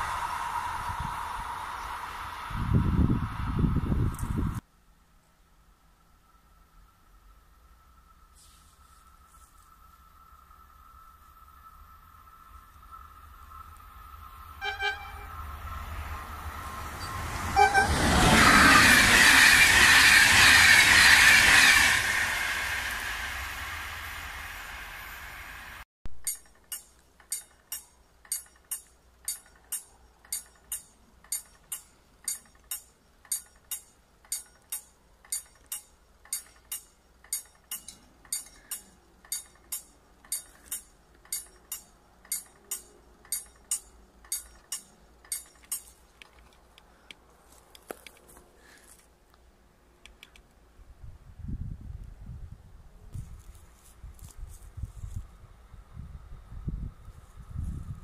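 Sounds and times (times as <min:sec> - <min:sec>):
train rail noise: 0:00.0 - 0:04.6, 0:05.4 - 0:49.2.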